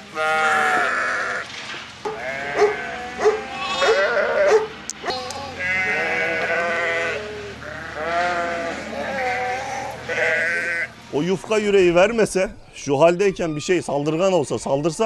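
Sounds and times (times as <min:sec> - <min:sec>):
sheep bleating: 0:00.0 - 0:01.5, 0:02.1 - 0:11.0.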